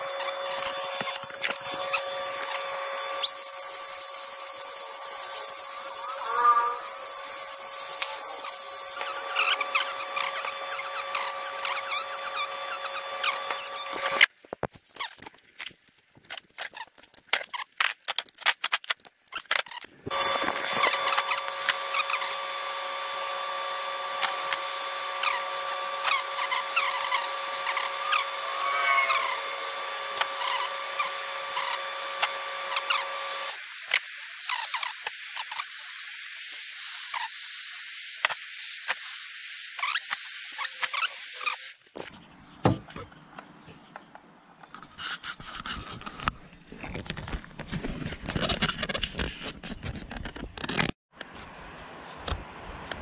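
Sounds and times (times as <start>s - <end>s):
power carver motor whine: 0.0s - 14.2s, 20.1s - 33.6s.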